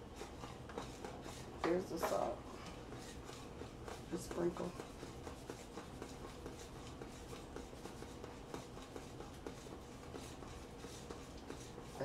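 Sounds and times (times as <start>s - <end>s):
cooking utensils scraping: 0.0s - 5.2s.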